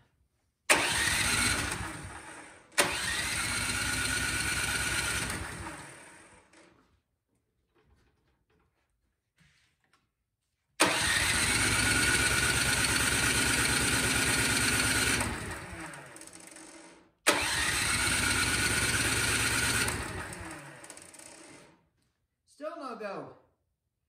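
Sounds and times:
electric starter cranking engine: 0:00.7 - 0:06.7, 0:10.8 - 0:21.8.

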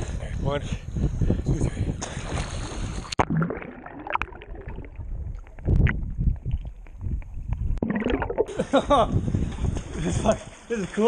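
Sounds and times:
underwater rushing and bubbling: 0:02.6 - 0:08.8.

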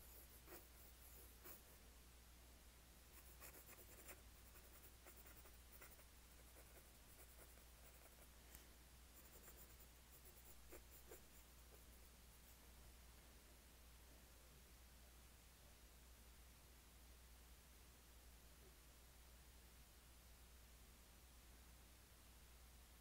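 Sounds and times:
pencil scratching on paper: 0:00.0 - 0:01.7, 0:03.2 - 0:08.3, 0:09.2 - 0:12.0.

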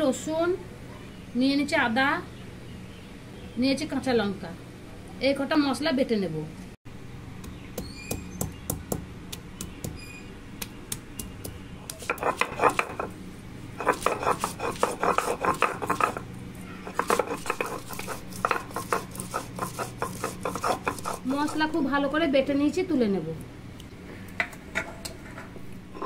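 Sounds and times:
stone roller grinding spices: 0:11.2 - 0:13.2, 0:13.8 - 0:22.0.

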